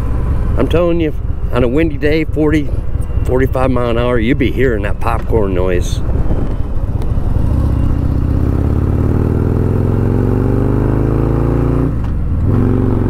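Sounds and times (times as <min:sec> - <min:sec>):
motorcycle engine accelerating: 0:06.0 - 0:13.0.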